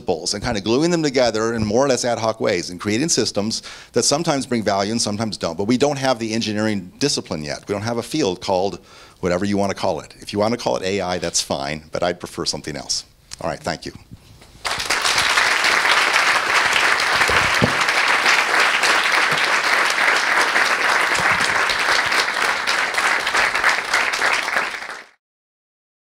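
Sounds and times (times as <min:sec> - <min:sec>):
audience applauding: 0:14.6 - 0:25.2.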